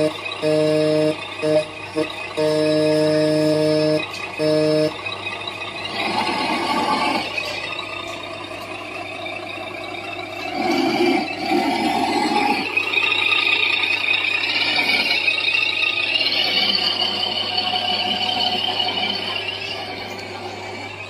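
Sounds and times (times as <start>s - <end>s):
electronic horn blasts: 0.0s - 6.2s
toy truck running noise: 0.0s - 21.0s.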